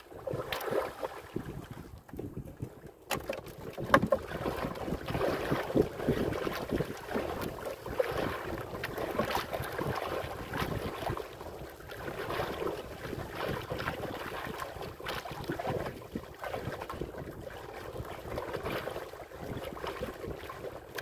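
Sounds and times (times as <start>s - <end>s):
waves splashing against boat: 0.0s - 21.0s
gusty wind buffeting microphone: 1.3s - 2.9s.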